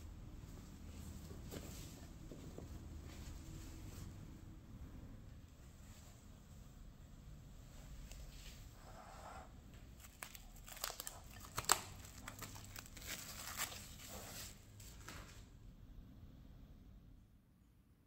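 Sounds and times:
cling film crinkling and crackling: 0:10.0 - 0:14.6.

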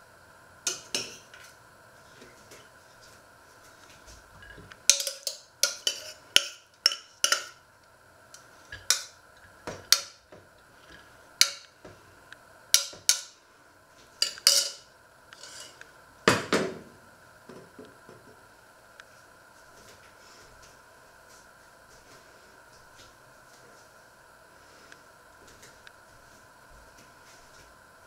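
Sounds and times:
metal spoon clinking on pot: 0:04.9 - 0:07.6, 0:14.2 - 0:14.8.

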